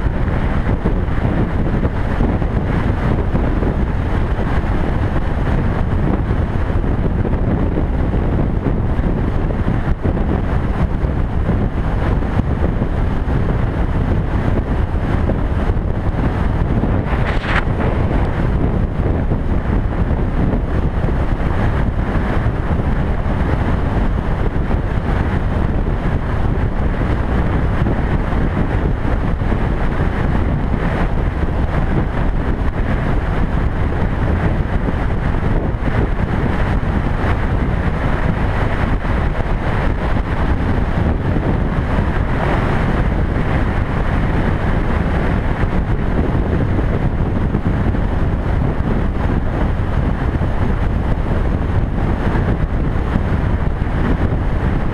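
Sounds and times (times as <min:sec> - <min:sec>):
motorcycle running: 0:00.0 - 0:54.9
wind rushing on microphone: 0:00.0 - 0:54.9.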